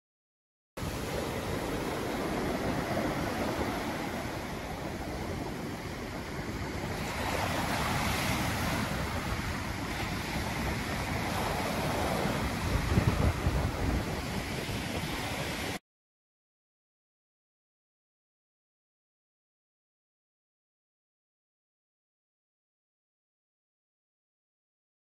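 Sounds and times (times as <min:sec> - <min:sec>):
sea waves: 0:00.8 - 0:15.8
wind: 0:00.8 - 0:15.8.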